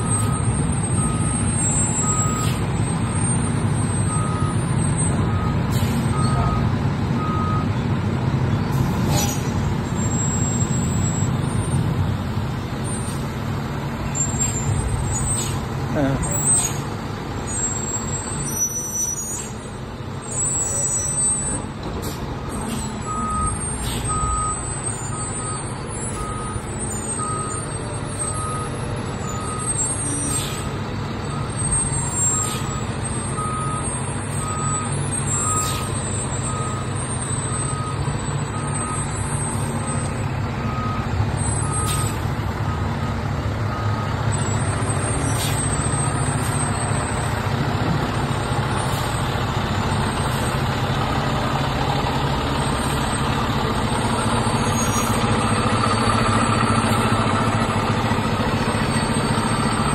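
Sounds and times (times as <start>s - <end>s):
diesel engine running: 0.0s - 59.9s
reverse alarm beeping: 23.0s - 30.0s.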